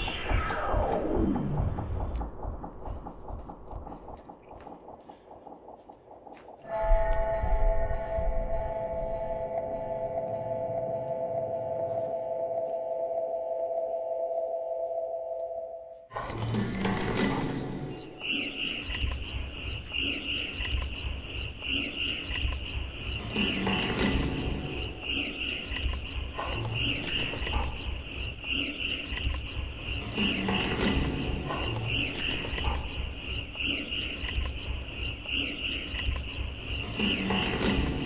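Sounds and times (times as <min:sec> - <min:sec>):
scattered clicks: 0:00.0 - 0:07.3, 0:18.2 - 0:38.0
pulsing low rumble: 0:00.0 - 0:12.8.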